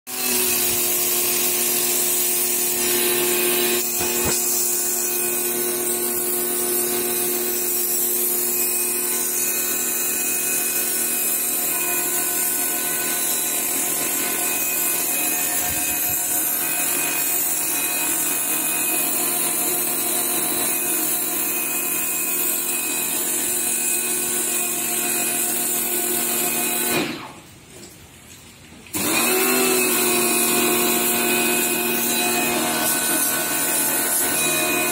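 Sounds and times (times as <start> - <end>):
water jet hissing on concrete: 0.1 - 11.7
pressure washer motor hum: 0.1 - 20.7, 28.9 - 34.9.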